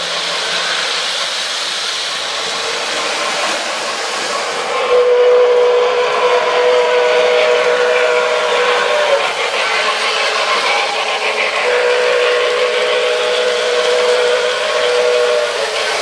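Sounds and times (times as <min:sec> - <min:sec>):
model train wheels rumbling: 0:00.0 - 0:16.0
electronic steam whistle chord: 0:04.3 - 0:16.0.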